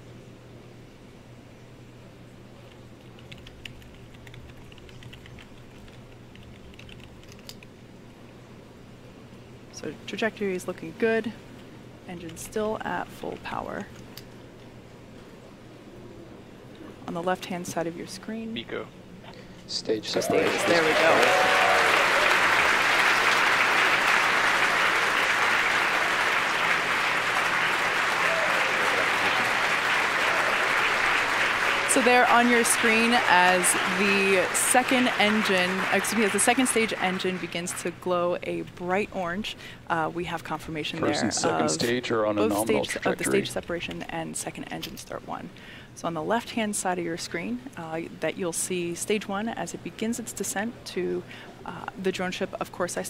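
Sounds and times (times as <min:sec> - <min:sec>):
low steady hum: 0:00.0 - 0:53.0
crowd applauding and cheering: 0:20.0 - 0:37.9.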